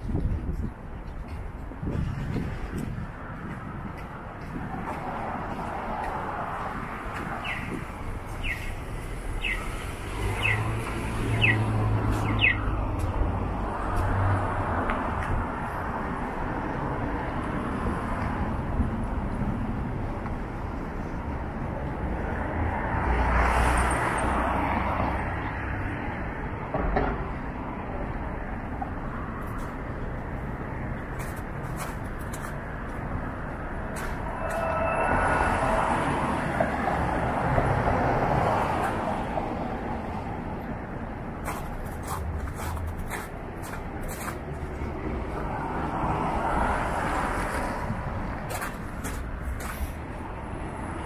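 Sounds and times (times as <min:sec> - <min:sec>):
passing traffic: 0:00.0 - 0:51.0
vehicle passing by: 0:04.6 - 0:14.9, 0:33.3 - 0:40.5.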